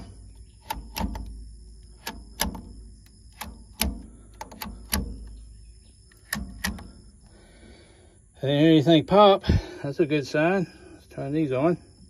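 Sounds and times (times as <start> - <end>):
plastic fuse holders clicking shut: 0.0 - 5.5, 6.1 - 7.0.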